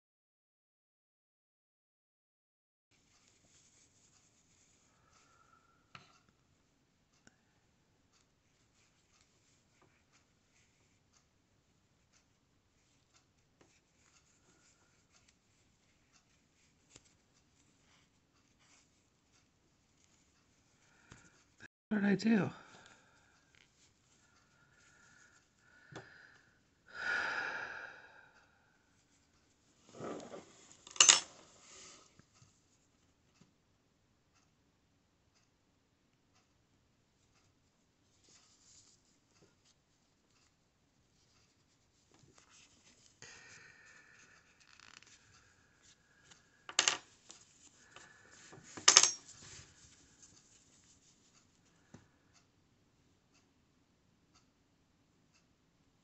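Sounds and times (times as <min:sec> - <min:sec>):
yarn rubbing and scratching: 0:03.0 - 0:04.9, 0:29.8 - 0:32.0
person breathing heavily: 0:24.2 - 0:28.8, 0:43.2 - 0:46.6, 0:47.8 - 0:48.8
metal tools clicking on table: 0:30.9 - 0:31.3, 0:46.7 - 0:47.0, 0:48.8 - 0:49.2.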